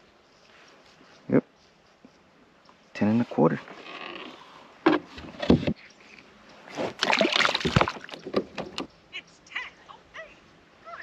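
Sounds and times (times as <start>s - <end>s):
fish splashing into water: 6.9s - 8.4s.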